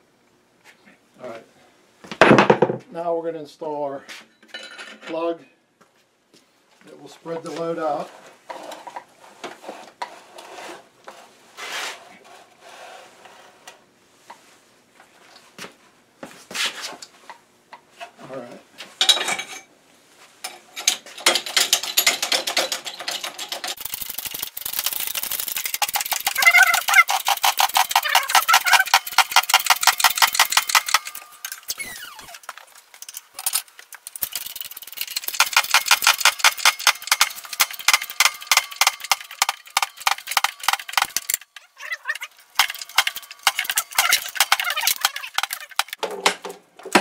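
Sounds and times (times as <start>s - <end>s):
squawking metal chatter: 22.6s - 46.0s.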